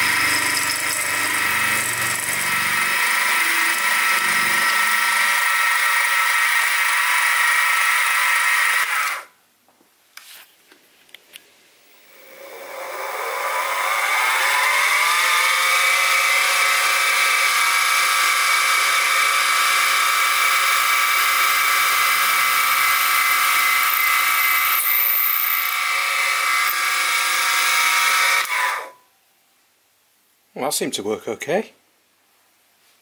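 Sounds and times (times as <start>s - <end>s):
mill spindle motor whine: 0.0s - 9.2s, 11.9s - 28.9s.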